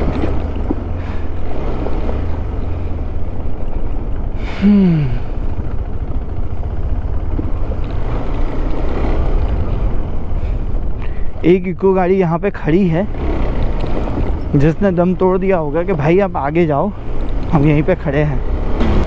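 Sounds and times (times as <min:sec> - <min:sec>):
motorcycle engine rumbling: 0:00.0 - 0:19.0.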